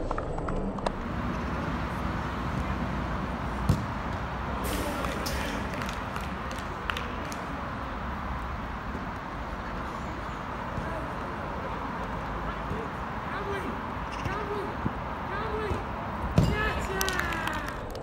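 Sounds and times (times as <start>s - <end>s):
steady background noise: 0.0s - 18.0s
distant players' voices: 1.0s - 18.0s
ball being kicked: 3.6s - 4.2s, 16.3s - 16.6s.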